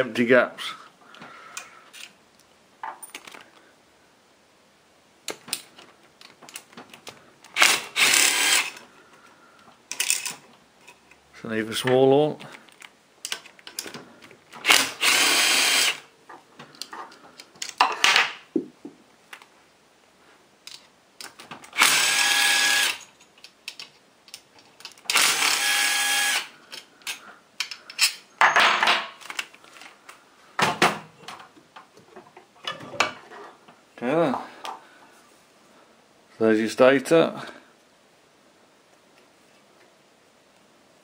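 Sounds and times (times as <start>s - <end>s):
cordless drill spinning out bolts: 7.5s - 8.8s, 14.6s - 16.0s, 21.8s - 23.0s, 25.1s - 26.5s.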